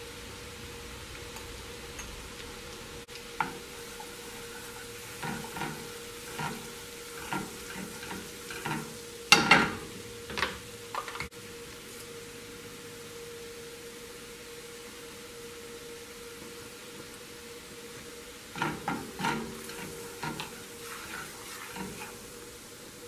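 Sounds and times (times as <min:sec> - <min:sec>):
butter sizzling in a frying pan: 0:00.0 - 0:23.0
spatula scraping a pan: 0:03.4 - 0:09.9, 0:18.5 - 0:22.5.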